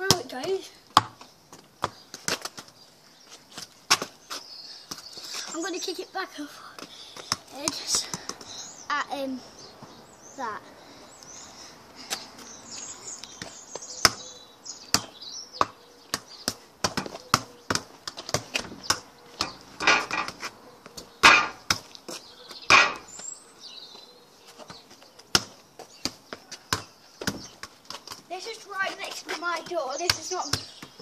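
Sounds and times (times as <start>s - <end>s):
football thudding against wall: 21.2s - 21.8s.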